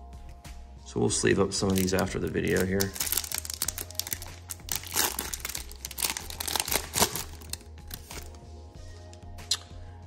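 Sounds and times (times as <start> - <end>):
foil wrapper crinkling: 1.6 - 8.4.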